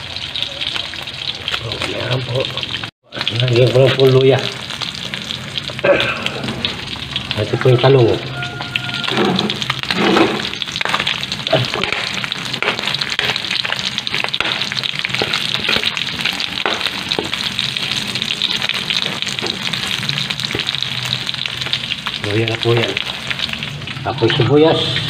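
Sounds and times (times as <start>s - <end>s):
food sizzling in hot oil: 0.0s - 25.0s
metal spatula scraping wok: 8.1s - 21.2s.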